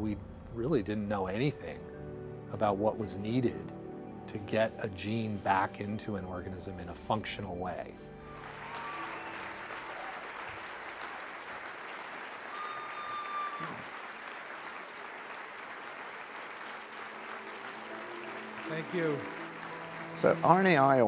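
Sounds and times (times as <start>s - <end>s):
audience applauding: 8.3s - 21.0s.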